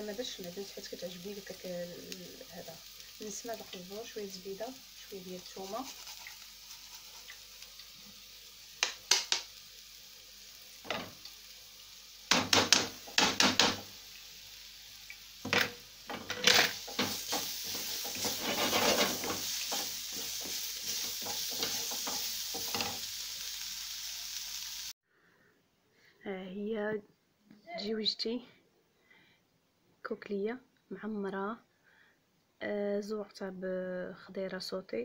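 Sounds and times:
pan sizzling: 0.0s - 25.0s
utensils scraping a pan: 5.4s - 7.4s, 15.5s - 23.1s.

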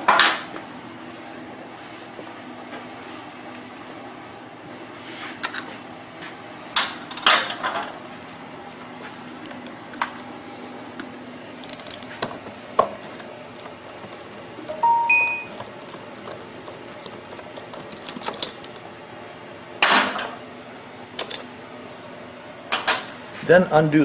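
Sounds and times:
ratchet clicks: 11.6s - 12.1s, 15.6s - 18.8s, 21.2s - 21.4s.

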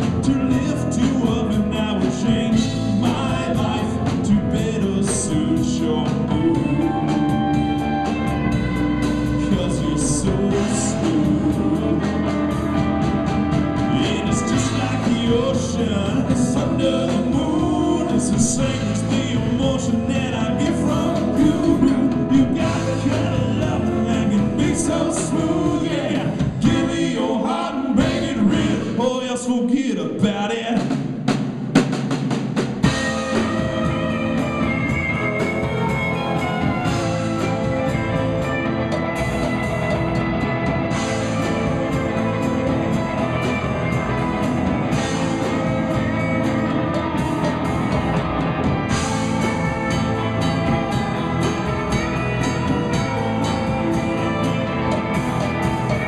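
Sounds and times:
man singing: 0.0s - 8.3s, 9.2s - 13.0s, 13.7s - 31.0s
electric guitar lead: 0.0s - 28.9s, 32.8s - 56.0s
live rock band playing: 0.0s - 29.2s, 30.2s - 56.0s.

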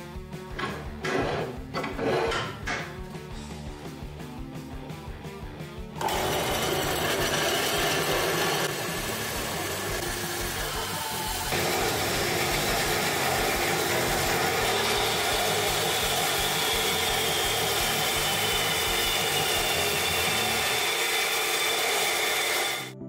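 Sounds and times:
band saw cutting steel tube: 6.0s - 23.0s.

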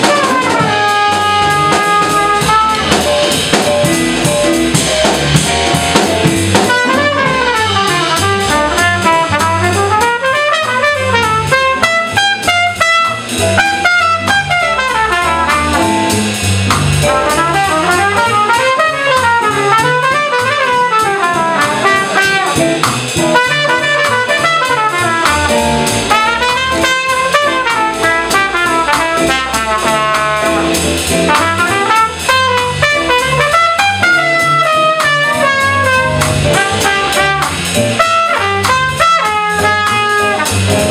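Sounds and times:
trumpet solo: 0.0s - 3.4s, 6.5s - 16.3s, 17.0s - 40.9s
electric keyboard: 0.0s - 8.1s, 34.2s - 38.0s, 40.0s - 40.9s
drum kit: 0.0s - 40.9s
walking upright bass: 0.0s - 40.9s.

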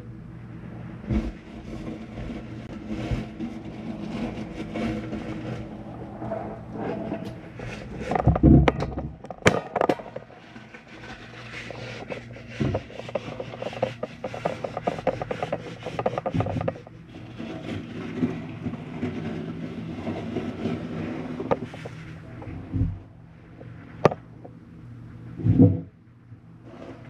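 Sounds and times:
scraping against steel walls: 1.0s - 23.1s
small clicks and knocks: 8.0s - 17.0s, 24.0s - 24.6s.

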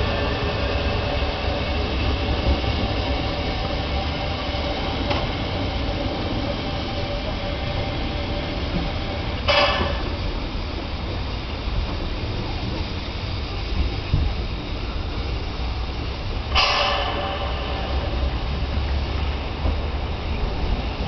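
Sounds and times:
train rumbling on rails: 0.0s - 21.0s.

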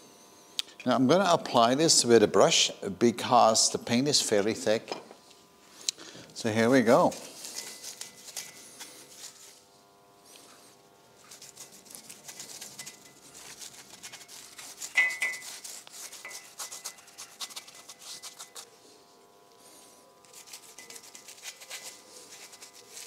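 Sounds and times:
paintbrush scrubbing on metal: 6.4s - 23.0s.

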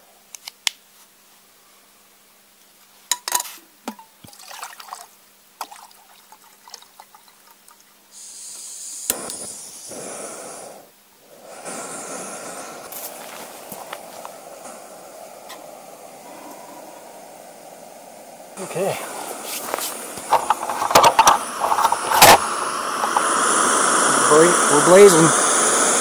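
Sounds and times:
water being poured: 3.9s - 8.0s
camp cookware clicking: 20.2s - 23.4s.

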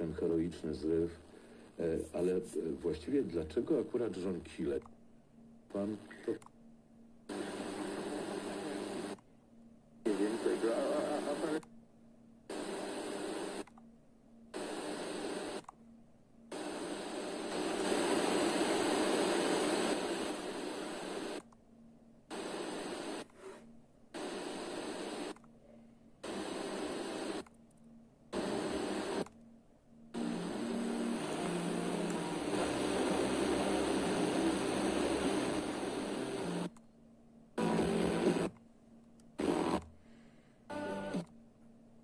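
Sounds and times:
noisy radio reception: 5.7s - 6.4s, 7.3s - 9.2s, 10.0s - 11.6s, 16.6s - 21.4s, 22.4s - 23.3s, 26.3s - 27.4s, 28.4s - 29.2s, 30.2s - 36.7s
radio static hiss: 5.7s - 6.4s, 7.3s - 9.2s, 10.0s - 11.6s, 12.5s - 13.6s, 14.6s - 15.6s, 16.5s - 21.4s, 22.3s - 23.6s, 24.2s - 25.4s, 26.2s - 27.4s, 28.3s - 29.3s, 30.2s - 36.7s, 37.6s - 38.6s, 39.4s - 39.8s, 40.7s - 41.2s.

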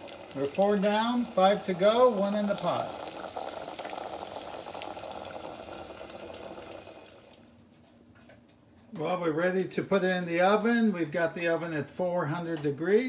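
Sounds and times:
chicken deep-frying in oil: 0.0s - 7.5s.

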